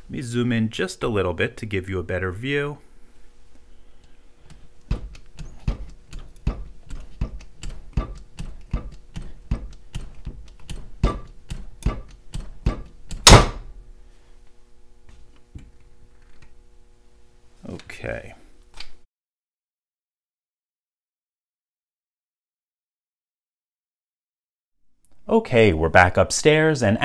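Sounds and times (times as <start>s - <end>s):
steel shackle snapping: 9.9s - 13.6s
hydraulic bolt cutter clicking: 13.1s - 13.6s.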